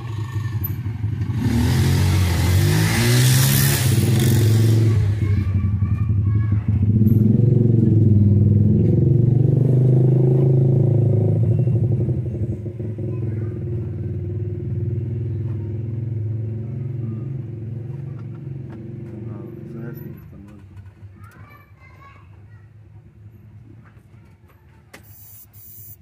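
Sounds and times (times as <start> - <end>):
diesel engine running: 0.0 - 9.3, 25.0 - 26.0.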